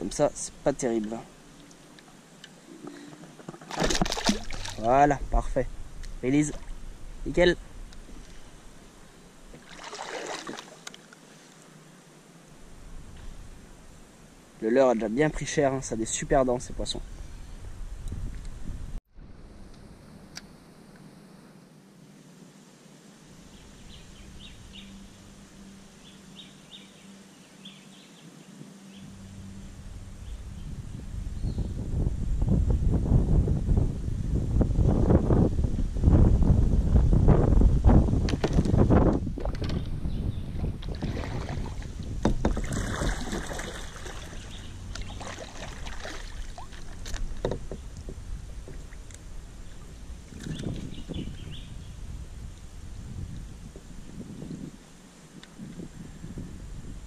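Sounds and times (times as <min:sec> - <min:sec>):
paddle splashing water: 0:02.8 - 0:04.9, 0:09.5 - 0:11.6, 0:40.6 - 0:49.1
water lapping at plastic hull: 0:02.8 - 0:04.9, 0:09.5 - 0:11.0, 0:40.6 - 0:50.8
small birds chirping: 0:23.5 - 0:25.2, 0:25.9 - 0:31.8, 0:43.6 - 0:46.7, 0:49.6 - 0:52.1
low rumble: 0:28.9 - 0:53.6.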